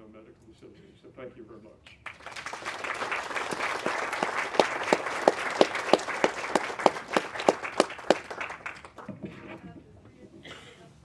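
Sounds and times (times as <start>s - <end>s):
close person clapping steadily: 1.9s - 9.2s
audience applauding: 2.0s - 9.2s.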